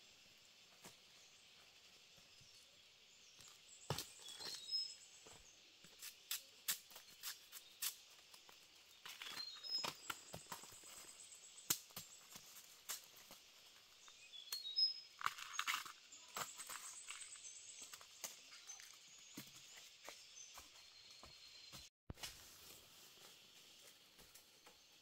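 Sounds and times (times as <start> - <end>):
dry leaves crackling underfoot: 15.2 - 19.0.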